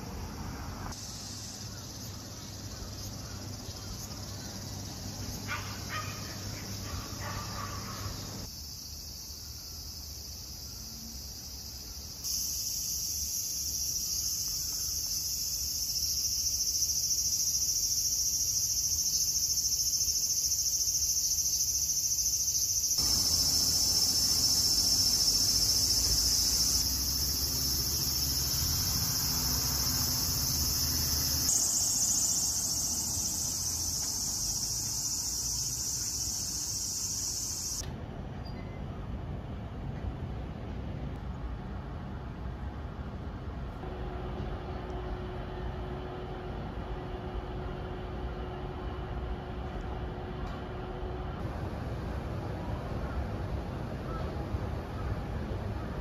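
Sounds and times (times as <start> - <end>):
insects chirring in trees: 0.0 - 37.8.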